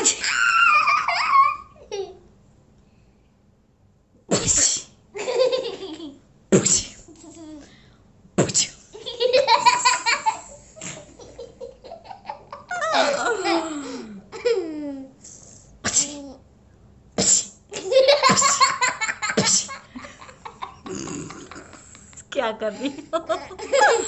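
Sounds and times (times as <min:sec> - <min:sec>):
fake sneezes: 0:00.0 - 0:00.4, 0:04.3 - 0:05.0, 0:06.5 - 0:07.1, 0:08.4 - 0:08.9, 0:15.8 - 0:16.4, 0:17.2 - 0:17.7, 0:19.4 - 0:19.8
girl laughing: 0:00.0 - 0:02.3, 0:09.0 - 0:15.1, 0:17.7 - 0:22.1, 0:22.7 - 0:24.0
woman laughing: 0:12.6 - 0:15.1, 0:22.6 - 0:24.0.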